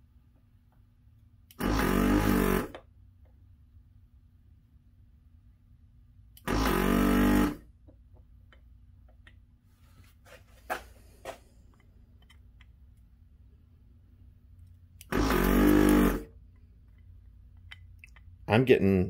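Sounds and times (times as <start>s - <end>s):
vacuum pump buzzing: 1.5s - 3.0s, 6.4s - 7.8s, 15.0s - 16.4s.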